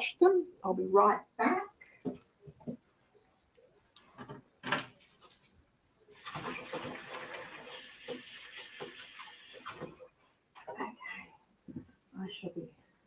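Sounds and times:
tap water running: 6.1 - 10.1.

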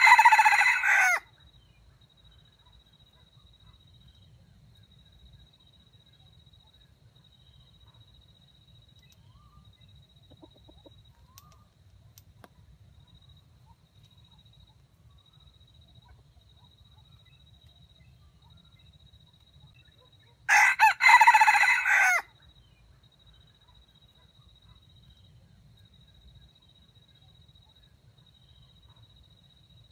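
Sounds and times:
rooster crowing: 0.0 - 1.3, 20.5 - 22.3.

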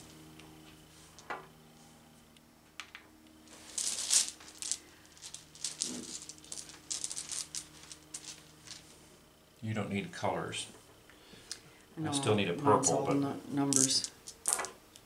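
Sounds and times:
plastic dice rattling on table: 3.8 - 8.4, 13.7 - 14.7.

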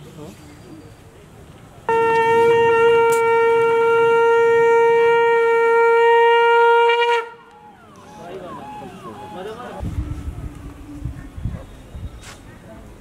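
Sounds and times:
conch shell blown: 1.9 - 12.0.

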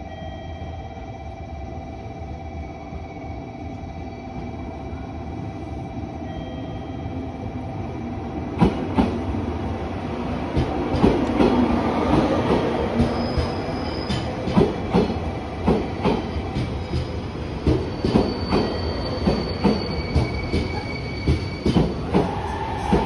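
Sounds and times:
train rumble: 7.1 - 23.0
high squeal: 17.7 - 23.0.

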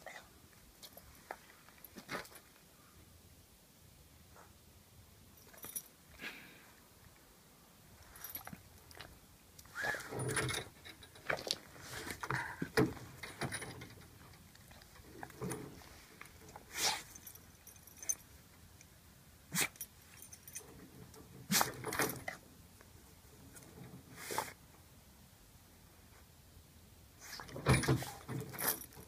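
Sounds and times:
metal chain jangling: 5.4 - 5.9, 8.0 - 9.0, 9.9 - 12.3, 13.0 - 18.4, 19.6 - 22.4, 27.6 - 29.0
rustling: 7.9 - 18.8.

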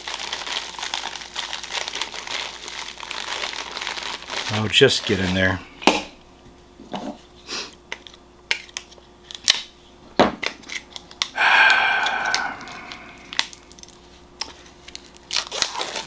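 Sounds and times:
man sighing heavily: 11.4 - 13.4.

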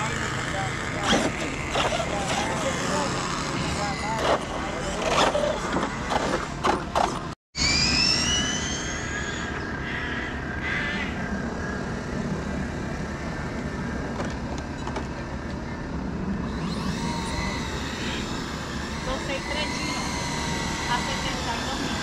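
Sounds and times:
steady background noise: 0.0 - 22.0
electric motor whine rising: 16.4 - 22.0.

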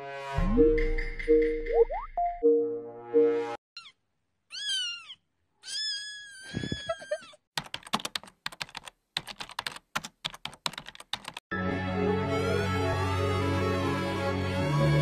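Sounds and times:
kitten meowing: 3.8 - 7.3
laptop keyboard typing: 7.6 - 11.4.

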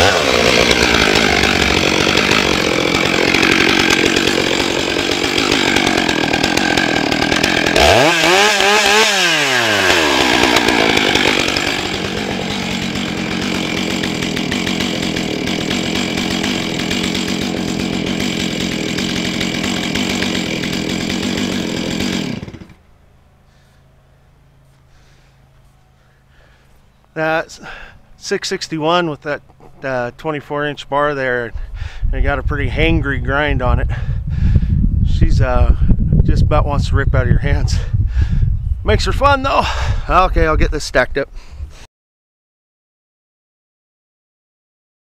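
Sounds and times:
chainsaw cutting wood: 0.0 - 22.8
chainsaw idling: 0.0 - 22.8, 23.5 - 23.8.

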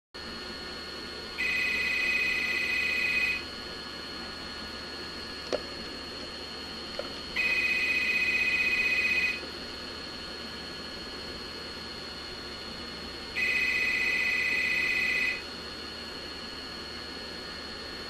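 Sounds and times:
desk telephone ringing: 1.4 - 3.4, 7.4 - 9.4, 13.4 - 15.4.

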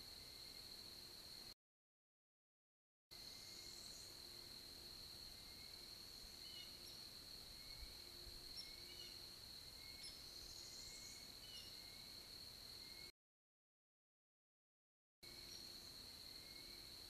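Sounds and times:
distant songbirds chirping: 3.2 - 13.1, 15.2 - 17.0
steady high-pitched whine: 3.2 - 13.1, 15.2 - 17.0.

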